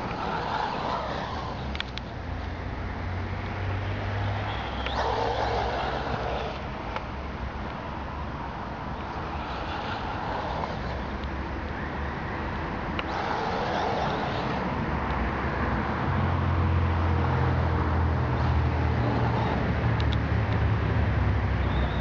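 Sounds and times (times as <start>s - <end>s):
electric motor whining: 0.0s - 2.5s, 4.4s - 7.2s, 13.0s - 14.8s
open-air noise: 0.0s - 22.0s.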